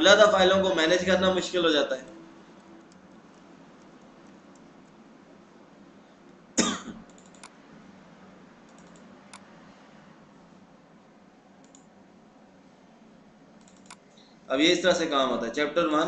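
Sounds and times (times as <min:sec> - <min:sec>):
faint room hiss: 0:00.0 - 0:16.0
person coughing: 0:06.6 - 0:07.0
computer mouse clicks: 0:07.0 - 0:07.6, 0:08.7 - 0:09.5, 0:11.6 - 0:11.9, 0:13.6 - 0:14.3.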